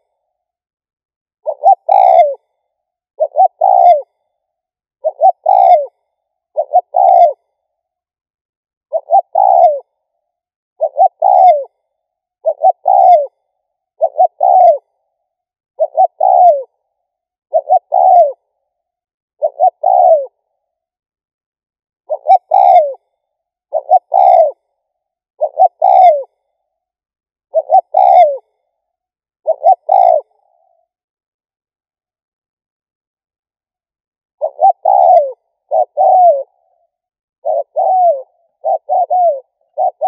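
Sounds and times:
dove cooing: 1.4s - 4.4s, 5.0s - 7.8s, 8.9s - 10.2s, 10.8s - 18.8s, 19.4s - 20.6s, 22.1s - 24.8s, 25.4s - 26.6s, 27.5s - 28.7s, 29.4s - 30.9s, 34.4s - 40.0s.

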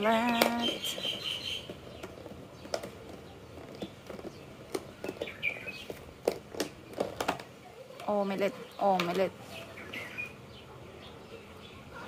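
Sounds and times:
bird chirping: 0.0s - 6.0s, 8.0s - 12.0s
plastic lid crackling: 0.1s - 8.1s.

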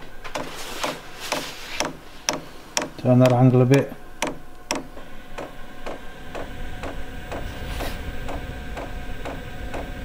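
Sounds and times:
steady hum: 0.0s - 10.0s
fuel pump ticking: 0.3s - 3.5s, 4.2s - 7.5s, 8.2s - 10.0s.

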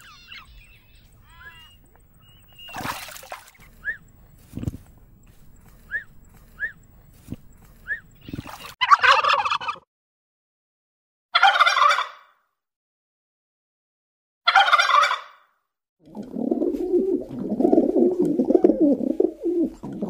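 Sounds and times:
faint short chirps: 3.6s - 8.8s
turkey gobbling: 8.8s - 9.8s, 11.4s - 12.3s, 14.5s - 15.4s.

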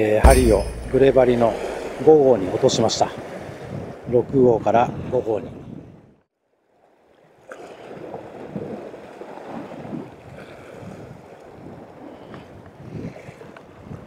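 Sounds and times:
wind buffeting microphone: 1.1s - 6.1s, 9.6s - 14.0s
choppy sea washing on rocks: 7.8s - 14.0s.

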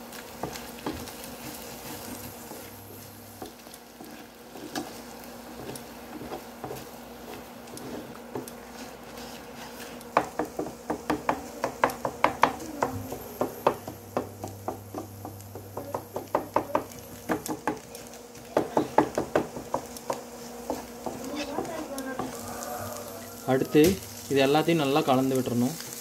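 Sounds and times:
wooden spatula tapping on griddle: 0.4s - 3.6s, 5.6s - 8.6s, 10.1s - 24.0s.

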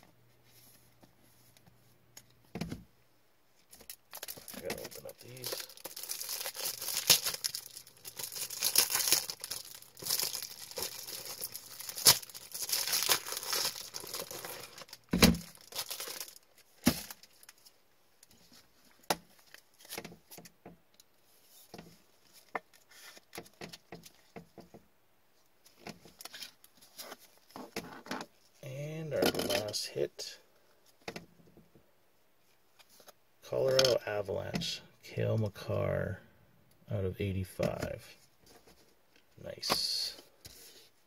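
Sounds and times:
wrapper crinkling and tearing: 3.8s - 17.8s.

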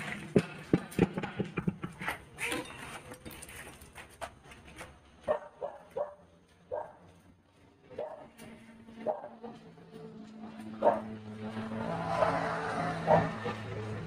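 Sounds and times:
sharp knocks and clatters: 0.0s - 5.0s
dog barking and yelping: 5.3s - 7.0s, 9.0s - 9.4s, 10.8s - 11.1s, 13.0s - 13.6s.

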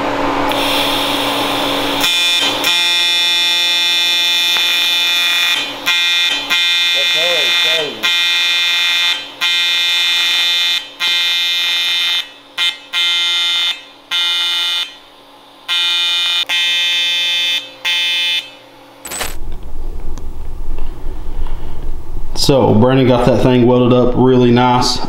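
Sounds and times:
welding arc buzzing: 0.0s - 20.0s
low rumble: 19.4s - 25.0s.

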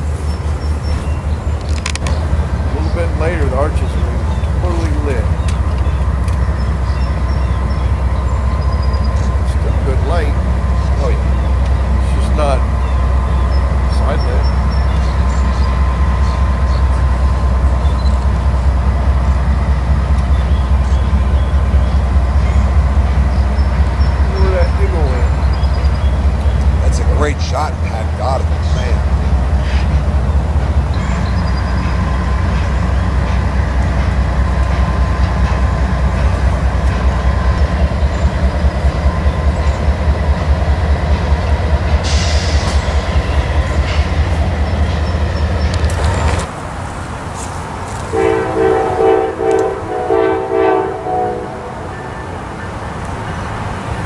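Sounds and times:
freight cars passing: 0.0s - 54.0s
freight locomotive engine rumble: 0.0s - 54.0s.

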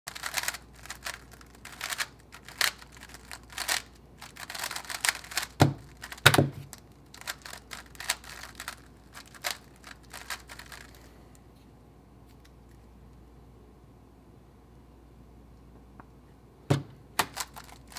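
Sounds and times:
plastic puzzle cube clicking: 0.1s - 11.0s, 17.2s - 17.9s.

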